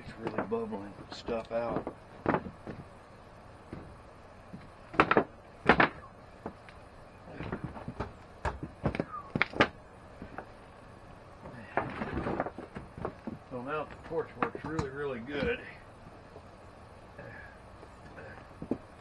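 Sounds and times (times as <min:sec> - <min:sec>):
wooden boards knocking on a deck: 0:00.2 - 0:02.8, 0:03.7 - 0:06.6, 0:07.3 - 0:10.5, 0:11.8 - 0:15.6.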